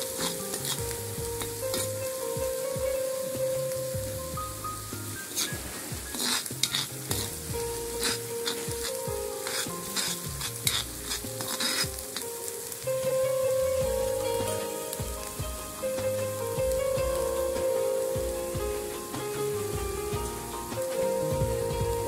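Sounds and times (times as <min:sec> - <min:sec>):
metal spoon scraping a pan: 0:00.0 - 0:02.0, 0:05.0 - 0:12.2
paste sizzling in a pan: 0:00.0 - 0:22.0.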